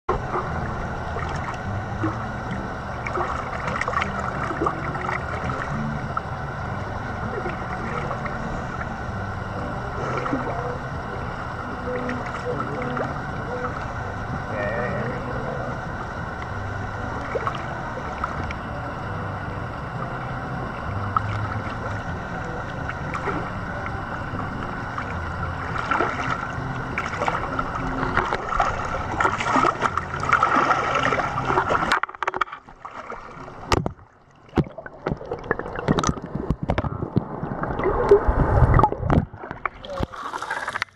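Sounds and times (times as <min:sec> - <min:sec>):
water lapping against rock: 0:00.1 - 0:09.1, 0:20.6 - 0:40.9
muffled underwater sound: 0:00.1 - 0:40.9
bubbling clicks and knocks: 0:28.0 - 0:40.9.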